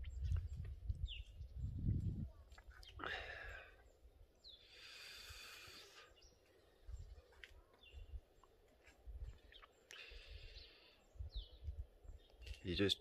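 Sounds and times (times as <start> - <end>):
low rumbles on microphone: 0.0 - 2.5
faint bird chirps: 0.0 - 8.6, 9.2 - 13.0.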